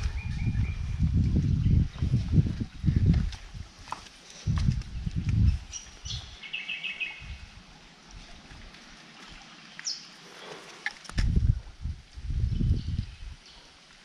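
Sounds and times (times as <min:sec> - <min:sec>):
bird chirping: 0:05.5 - 0:07.5.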